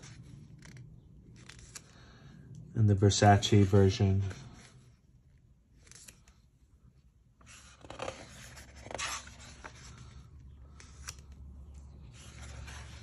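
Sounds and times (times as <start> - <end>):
book pages turning: 0.0 - 2.3, 5.6 - 6.6, 7.4 - 13.0.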